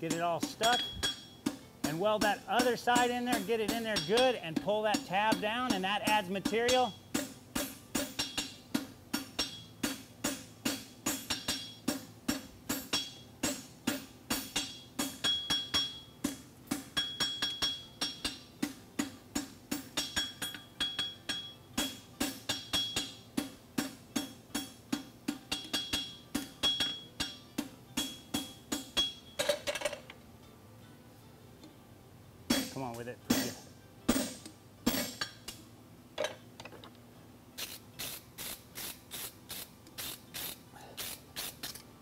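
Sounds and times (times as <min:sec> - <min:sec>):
hammer striking metal on anvil: 0:00.0 - 0:29.7, 0:32.5 - 0:35.6.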